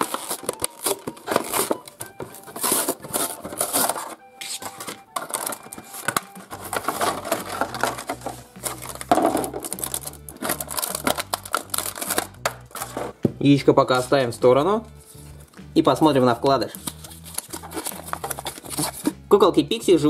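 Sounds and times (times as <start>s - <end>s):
plastic packaging crackling: 0.0s - 13.2s, 16.5s - 19.1s.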